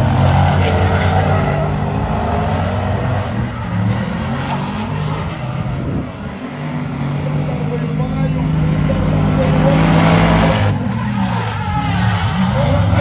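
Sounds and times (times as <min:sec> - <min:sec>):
car engines revving hard: 0:00.0 - 0:13.0
tyres screeching: 0:06.9 - 0:13.0.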